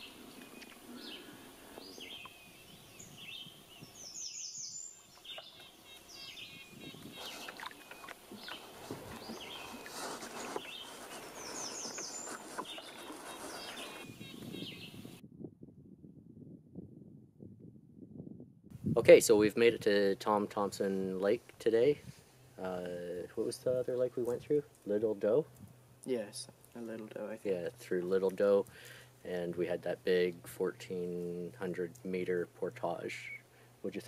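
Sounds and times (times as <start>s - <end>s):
background hiss: 0.0s - 15.1s, 18.7s - 34.0s
small birds chirping: 0.0s - 15.2s.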